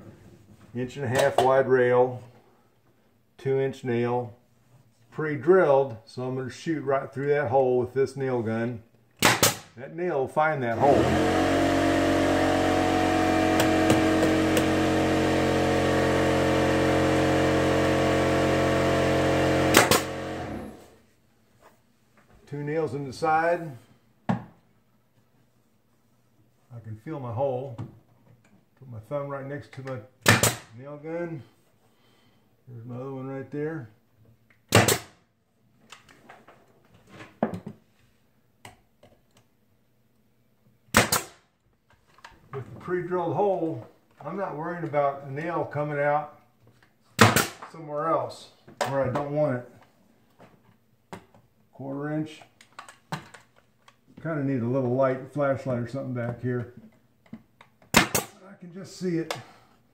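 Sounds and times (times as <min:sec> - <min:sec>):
nail gun firing: 0:09.2 - 0:09.7, 0:18.8 - 0:20.8, 0:30.2 - 0:30.7, 0:34.7 - 0:35.2, 0:40.9 - 0:41.4, 0:47.2 - 0:47.7, 0:57.9 - 0:58.4
electric air compressor running: 0:10.8 - 0:21.0.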